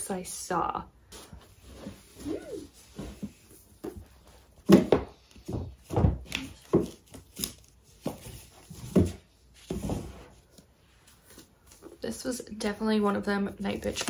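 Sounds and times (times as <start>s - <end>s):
books thumping and knocking: 2.9s - 7.3s, 8.0s - 10.3s.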